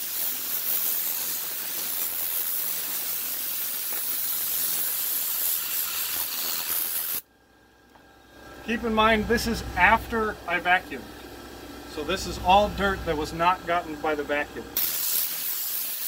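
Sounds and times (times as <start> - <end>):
compressed air hissing: 0.0 - 7.2, 12.0 - 16.0.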